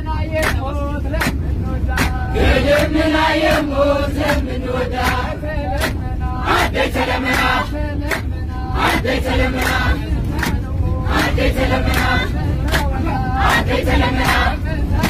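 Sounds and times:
bus rumble: 0.0 - 15.0
hand claps: 0.4 - 6.1, 7.2 - 8.3, 9.5 - 13.0
group singing a hymn: 1.2 - 15.0.

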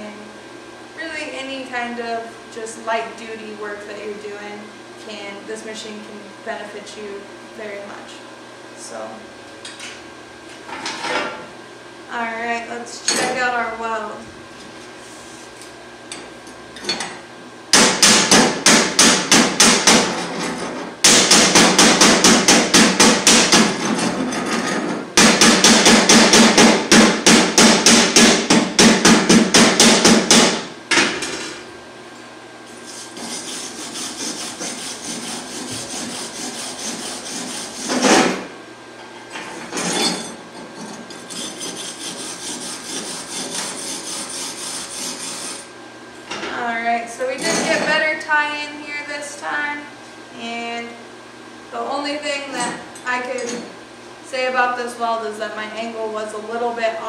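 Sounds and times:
wire brush scratching metal: 32.8 - 38.2, 41.2 - 45.7.

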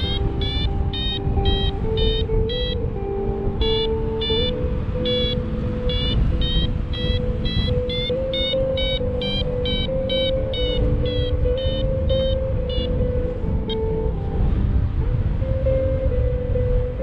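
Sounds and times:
variometer short beeps: 0.0 - 2.9, 3.6 - 13.0
steady lower tone: 0.0 - 17.0
wind rushing on microphone: 0.0 - 17.0.

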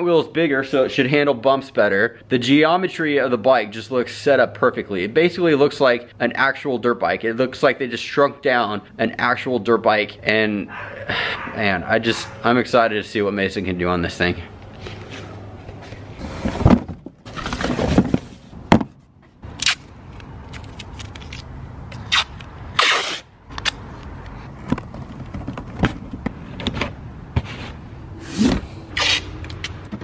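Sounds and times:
masking tape ripping off roll: 22.0 - 23.3, 29.0 - 29.3.

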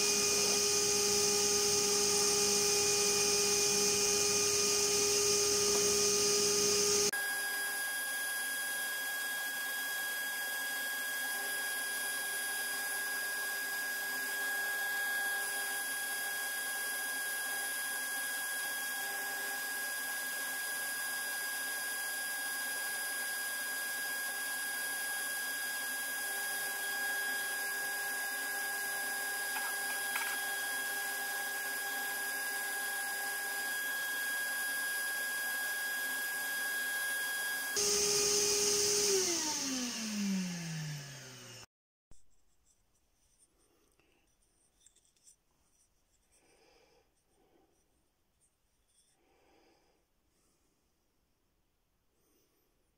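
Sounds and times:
wood lathe motor whining: 0.0 - 41.7.

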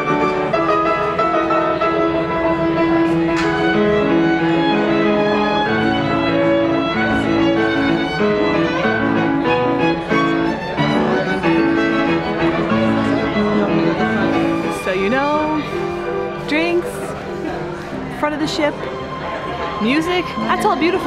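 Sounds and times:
piano: 0.0 - 21.0
violin: 0.0 - 21.0.

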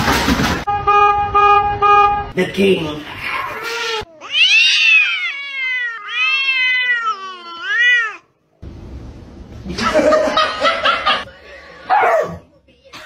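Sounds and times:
cat meowing: 3.6 - 8.3.

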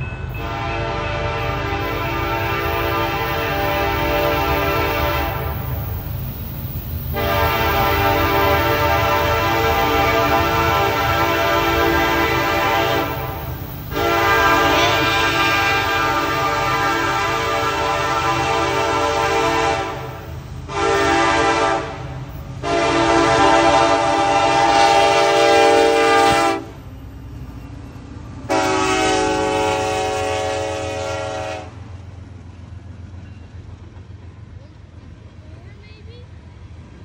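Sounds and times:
low rumble of passing train: 0.0 - 37.0
locomotive air horn blasts: 0.3 - 5.8, 7.1 - 26.8, 28.5 - 31.8.

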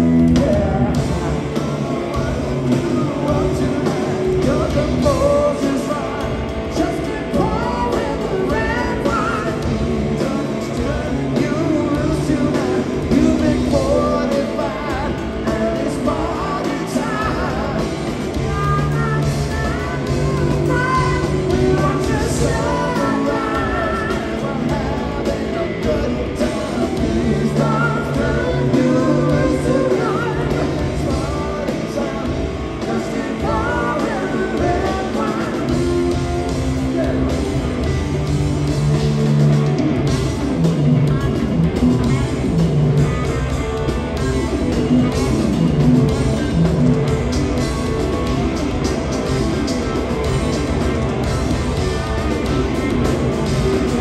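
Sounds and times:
person singing: 0.0 - 39.4
rock band playing: 0.0 - 54.0.

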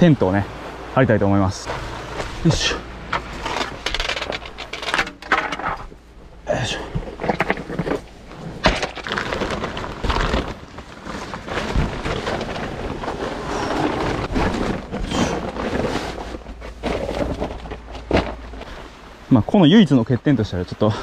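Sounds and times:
gear knocking and bumping: 2.2 - 6.0
tent fabric rustling: 8.0 - 18.9.

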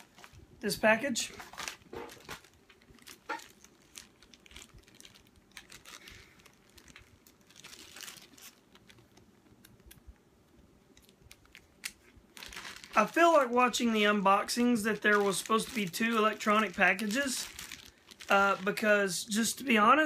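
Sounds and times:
plastic bag crinkling: 0.0 - 10.1, 10.9 - 19.8.

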